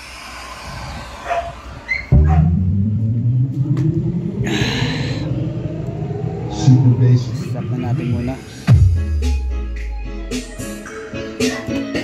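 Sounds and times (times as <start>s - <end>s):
bass-heavy music through loudspeakers: 0.0s - 4.4s, 6.5s - 12.0s
brighter higher sound: 2.1s - 9.0s.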